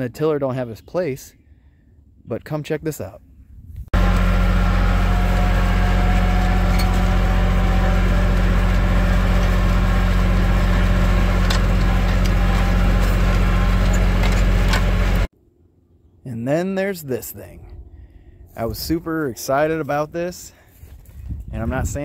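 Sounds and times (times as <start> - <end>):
tractor engine drone: 4.0 - 15.8.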